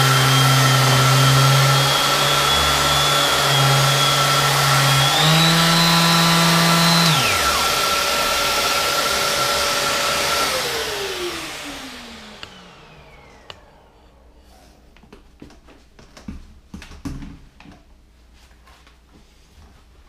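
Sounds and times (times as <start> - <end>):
electric sander running: 0.0 - 14.3
vacuum cleaner motor whine: 0.0 - 14.8.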